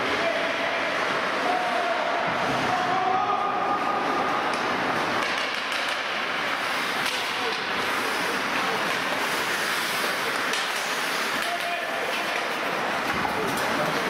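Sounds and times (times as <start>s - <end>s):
skates scraping on ice: 0.0s - 14.0s
voices: 0.0s - 14.0s
hockey sticks and puck clicking: 4.3s - 14.0s.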